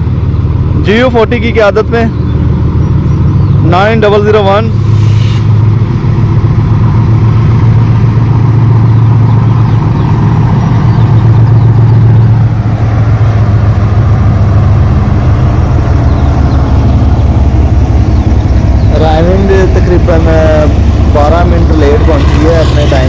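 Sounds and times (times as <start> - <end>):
locomotive engine humming: 0.0 - 23.0.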